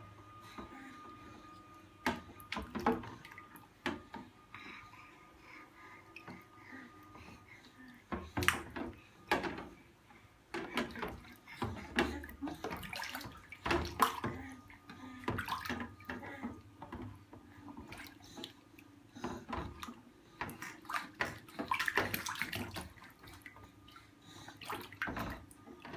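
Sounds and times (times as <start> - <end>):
water splashing in a metal sink: 2.0 - 4.1, 8.1 - 9.6, 10.5 - 18.6, 19.4 - 23.6, 24.6 - 25.9
bath toys knocking: 8.1 - 9.8, 10.5 - 14.4.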